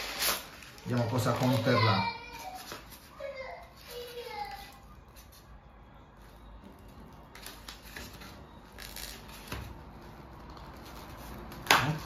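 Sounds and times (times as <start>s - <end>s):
polystyrene foam scraping: 0.0s - 4.8s.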